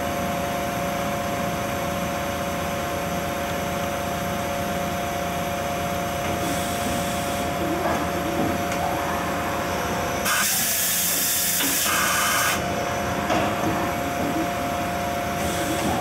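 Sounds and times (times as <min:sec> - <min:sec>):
loud hiss of air: 0:10.2 - 0:12.8.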